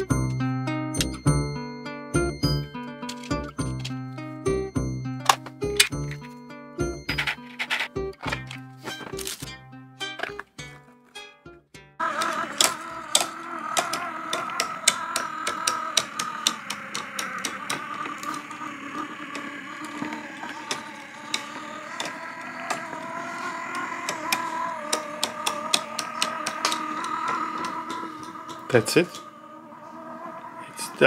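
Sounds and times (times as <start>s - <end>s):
motor and plastic gears whining: 0.0s - 10.8s, 12.0s - 31.0s
music: 0.0s - 12.0s
gear clicks: 3.0s - 4.0s, 12.0s - 29.3s.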